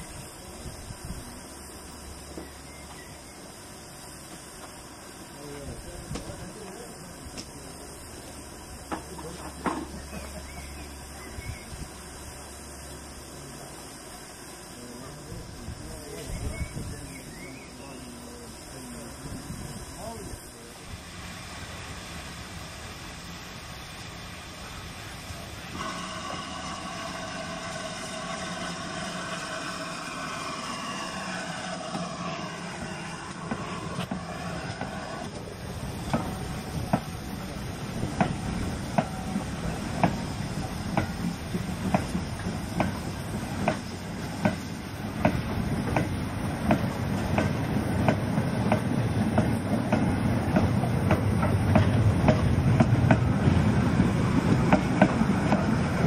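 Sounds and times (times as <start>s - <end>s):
train running rumble: 0.0s - 56.0s
ringing train wheel squeal: 25.7s - 37.4s, 38.2s - 44.7s.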